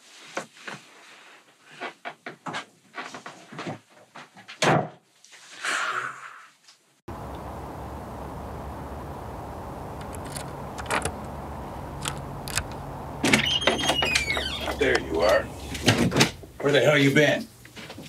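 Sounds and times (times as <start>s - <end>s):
steady rumble: 7.1s - 16.8s
drawer slamming: 15.7s - 16.4s.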